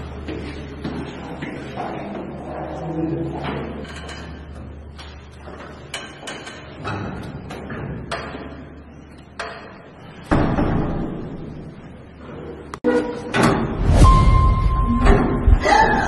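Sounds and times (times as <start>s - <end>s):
loud thud: 13.4s - 15.6s
short steady beep: 14.0s - 15.2s.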